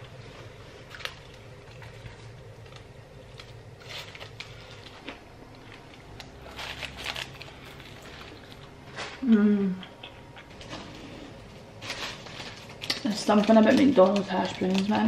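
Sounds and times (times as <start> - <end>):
crunching bites and chewing: 0.8 - 9.1.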